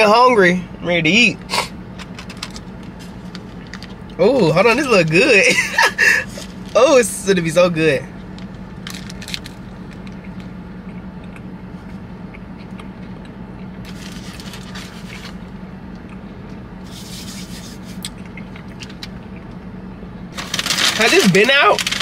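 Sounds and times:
low hum: 0.0 - 22.0
paper wrapper rustling: 2.3 - 5.2, 6.3 - 7.0, 8.4 - 9.6, 13.9 - 15.4, 20.4 - 22.0
person chewing: 10.0 - 15.4, 16.0 - 19.5.

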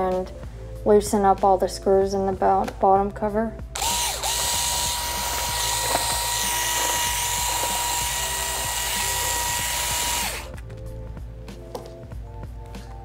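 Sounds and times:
electric screwdriver motor whine: 3.8 - 10.5.

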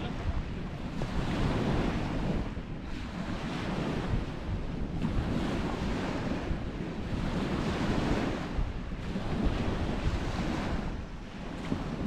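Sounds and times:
waves washing onto beach: 0.0 - 12.0
wind rumbling on microphone: 0.0 - 12.0.

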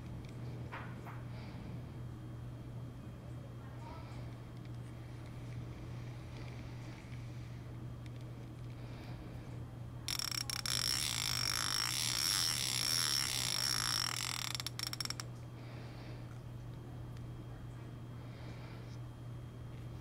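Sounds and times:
fishing reel drag clicking: 10.1 - 15.3.

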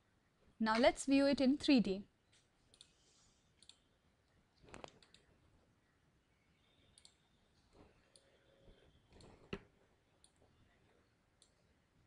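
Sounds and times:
computer mouse clicks: 2.3 - 3.0, 3.6 - 3.9, 4.6 - 5.3, 6.9 - 8.4, 9.1 - 10.4.

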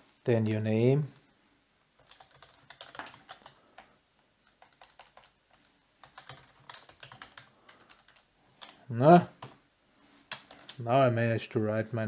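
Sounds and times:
faint keyboard typing: 1.9 - 10.9.

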